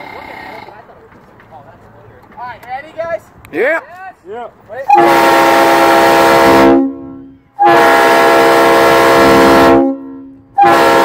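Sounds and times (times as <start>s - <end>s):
train horn blasts: 4.8s - 11.0s.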